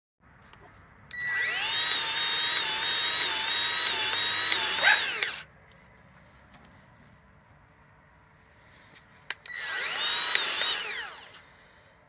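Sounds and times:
grease gun motor whirring: 0:01.1 - 0:05.4, 0:09.4 - 0:11.4.

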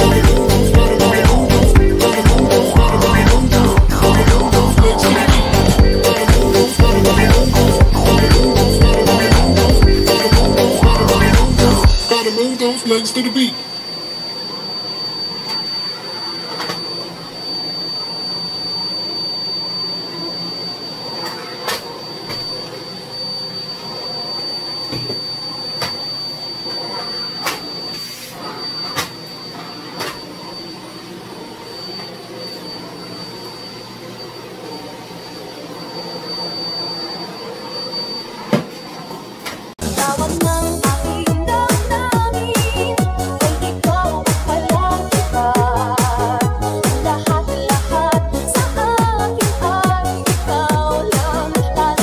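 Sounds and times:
music: 0:00.0 - 0:12.5, 0:39.8 - 0:52.0
vacuum cleaner whining: 0:00.0 - 0:52.0.

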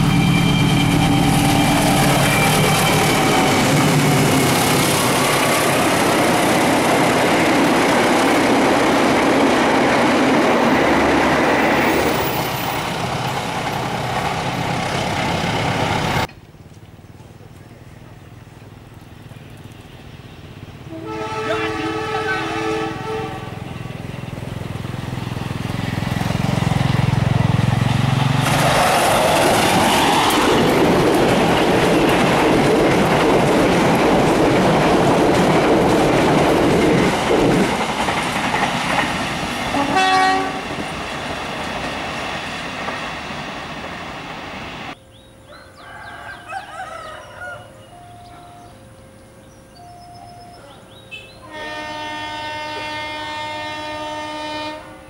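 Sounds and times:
locomotive air horn: 0:00.0 - 0:03.9, 0:20.8 - 0:23.7, 0:39.7 - 0:40.7, 0:51.1 - 0:55.0
train horn blast: 0:00.0 - 0:04.2, 0:20.8 - 0:23.8, 0:39.7 - 0:40.8, 0:51.1 - 0:55.0
train wheels clattering on rails: 0:00.0 - 0:16.9, 0:23.7 - 0:44.6
locomotive engine rumble: 0:00.0 - 0:45.4.

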